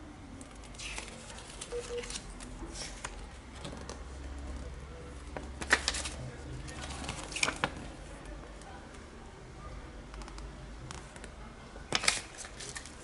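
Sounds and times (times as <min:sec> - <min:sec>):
paper rustling and crinkling: 0:00.6 - 0:04.6, 0:05.4 - 0:08.0, 0:11.9 - 0:13.0.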